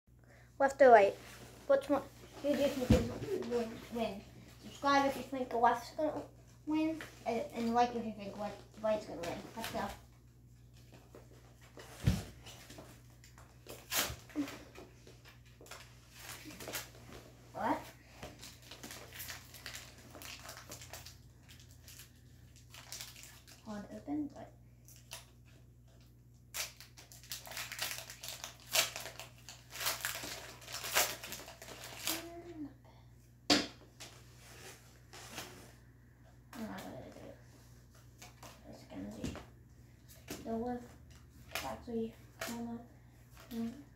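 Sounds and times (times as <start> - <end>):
foil pack tearing and rustling: 18.4 - 23.7, 26.5 - 32.3.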